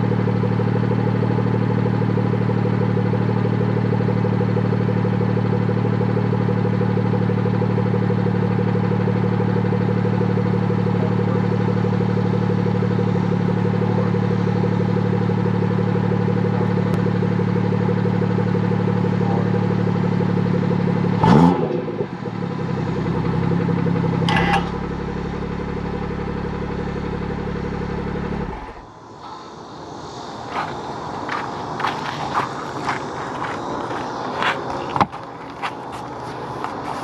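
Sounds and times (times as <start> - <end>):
car engine idling: 0.0 - 37.0.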